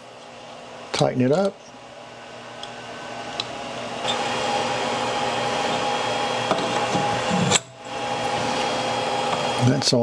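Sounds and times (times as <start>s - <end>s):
small electric motor whirring: 2.6s - 9.9s.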